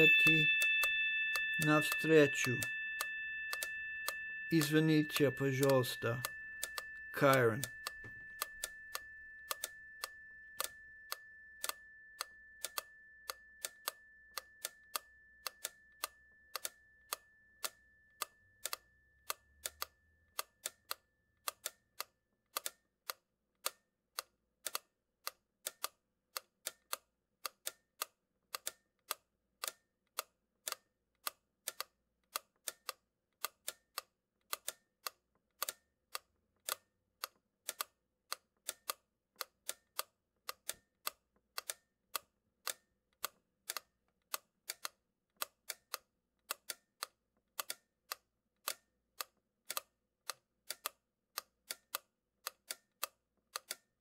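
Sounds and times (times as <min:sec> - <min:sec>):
steady high tone: 0:00.0 - 0:17.6
sharp clicks: 0:00.2 - 0:53.8.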